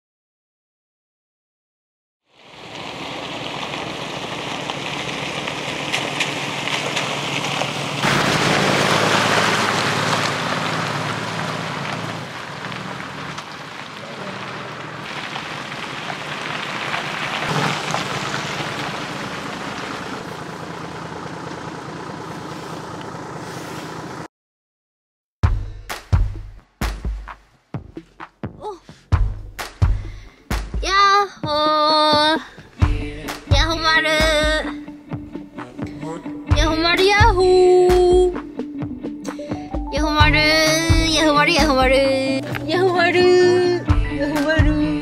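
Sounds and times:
steady rain hissing: 2.3 - 21.2
car engine driving slowly: 2.3 - 24.3, 38.5 - 45.0.

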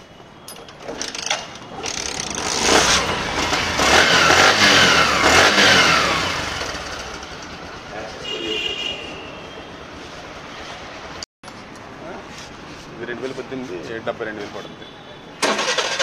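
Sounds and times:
motorcycle engine revving: 1.8 - 8.1.

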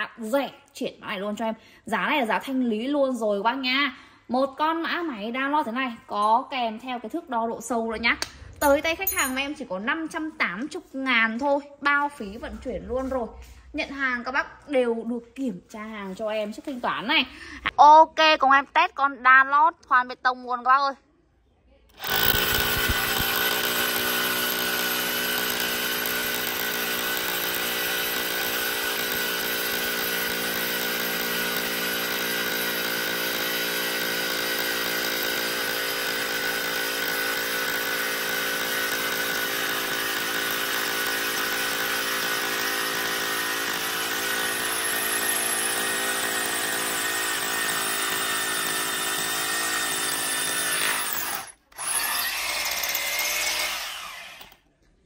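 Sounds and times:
hammer drill drilling into concrete: 22.0 - 54.7.

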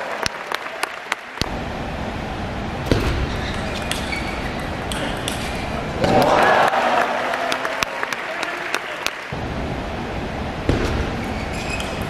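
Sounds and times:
table tennis rally strokes: 3.1 - 9.4.

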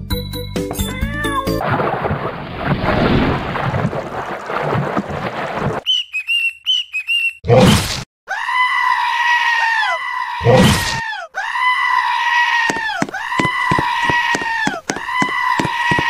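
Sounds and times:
wavering goat-like scream: 8.3 - 16.0.

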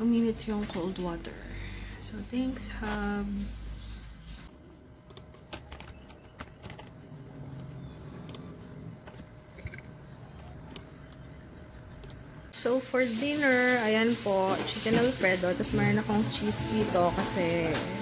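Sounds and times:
computer keyboard typing: 5.1 - 7.0.

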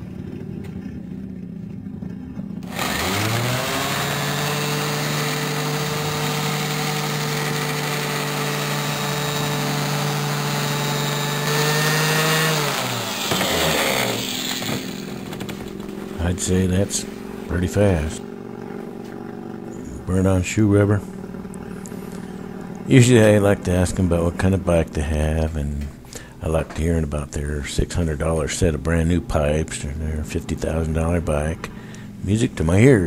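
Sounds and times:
orbital sander whining: 2.6 - 24.6.

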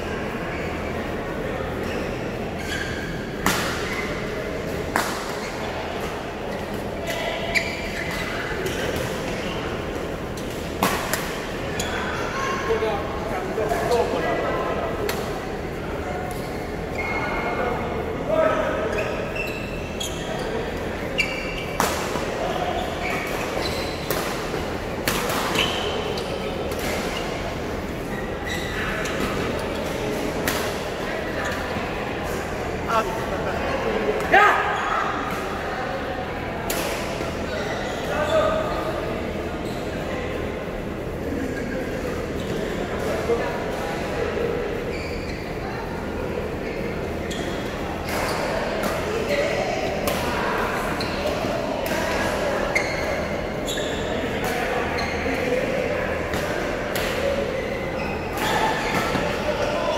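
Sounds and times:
background noise of play: 0.0 - 59.9
murmur of voices: 0.0 - 59.9
shoes squeaking on court: 0.5 - 12.6, 18.8 - 33.3, 36.9 - 41.6, 44.8 - 46.0, 47.1 - 50.2, 50.8 - 59.9.

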